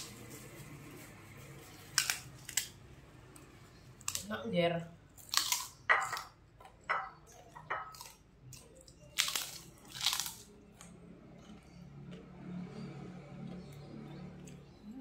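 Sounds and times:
crunching crackers: 0:01.6 - 0:04.3, 0:05.1 - 0:12.8.

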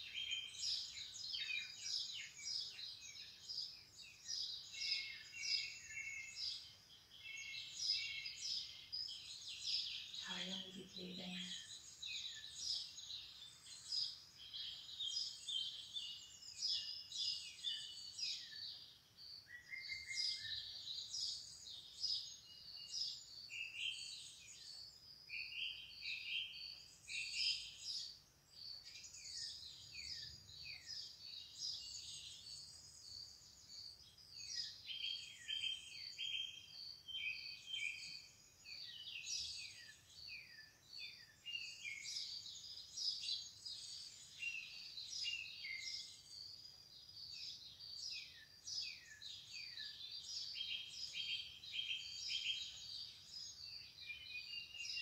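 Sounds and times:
birds chirping and singing: 0:00.0 - 0:55.0.

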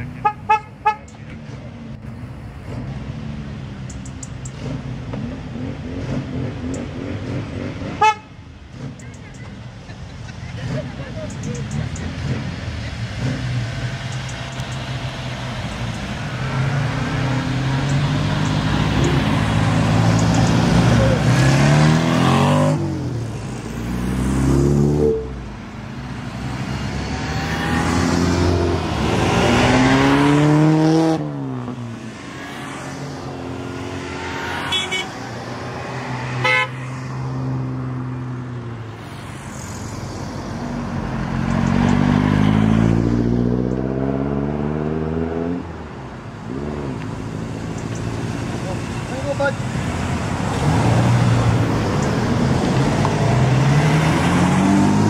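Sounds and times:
car horn toots: 0:00.2 - 0:01.1, 0:08.0 - 0:08.3, 0:34.7 - 0:35.2, 0:36.4 - 0:36.9
cars accelerating past: 0:01.2 - 0:09.1, 0:09.9 - 0:55.0.

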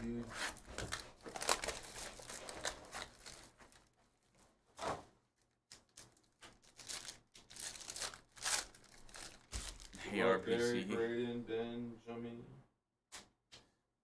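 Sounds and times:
shrink-wrap tearing: 0:00.4 - 0:03.9, 0:05.7 - 0:10.0
foil wrapper crinkling and tearing: 0:00.6 - 0:04.0, 0:05.7 - 0:10.0.

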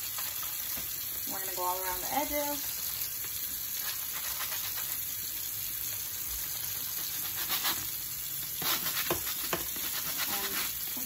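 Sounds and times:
brush scrubbing metal mesh: 0:08.6 - 0:10.8.

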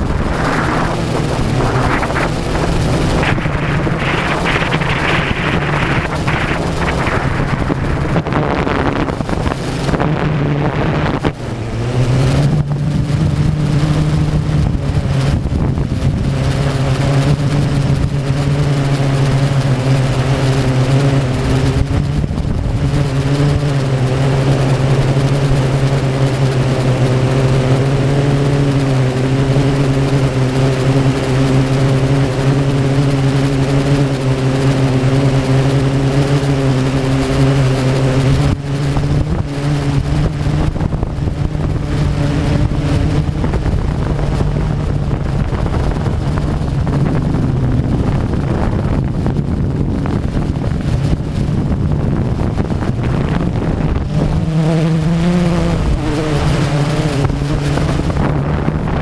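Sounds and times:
drone propellers humming: 0:00.0 - 0:59.0
wind rushing across microphone: 0:00.0 - 0:59.0.

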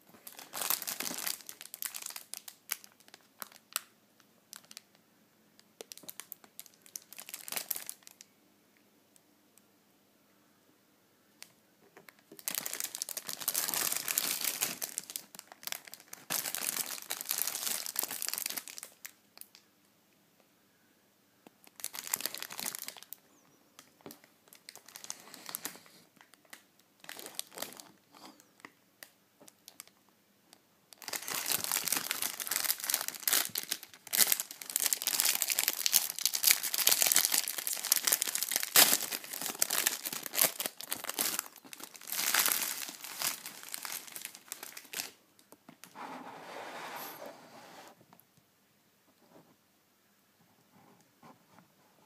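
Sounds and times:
plastic wrapper crinkling: 0:00.0 - 0:03.9, 0:04.5 - 0:05.0, 0:05.8 - 0:08.3, 0:12.0 - 0:19.6, 0:21.6 - 0:30.0, 0:30.9 - 0:46.0
plastic being torn open: 0:31.0 - 0:45.2.

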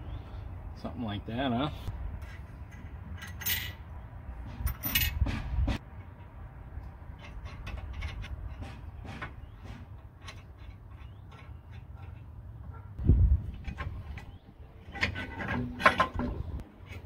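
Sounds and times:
metal nuts and bolts clinking: 0:02.2 - 0:03.9, 0:04.5 - 0:05.2, 0:07.1 - 0:08.8, 0:10.0 - 0:12.4.

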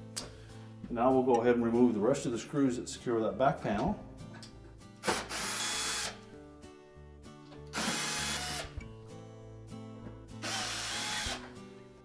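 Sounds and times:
power drill backing out screws: 0:07.7 - 0:08.8, 0:10.4 - 0:11.5.

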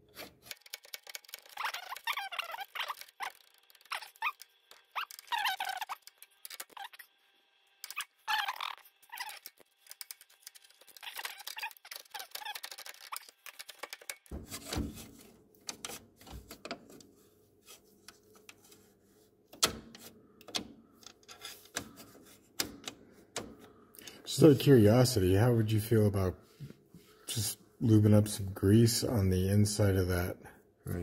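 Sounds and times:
metallic clicks and rattles: 0:00.1 - 0:06.9, 0:09.1 - 0:14.3
metal squeaking: 0:01.3 - 0:07.1, 0:07.8 - 0:13.4.

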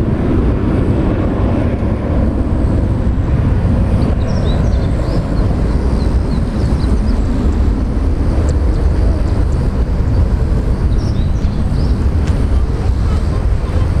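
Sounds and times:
jet airliner rumbling on climb: 0:00.0 - 0:14.0.

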